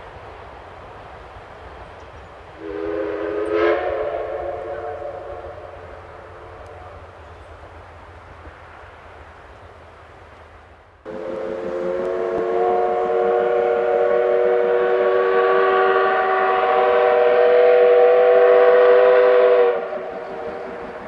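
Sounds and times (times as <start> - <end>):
steam locomotive whistle: 2.6 - 7.0, 11.1 - 21.0.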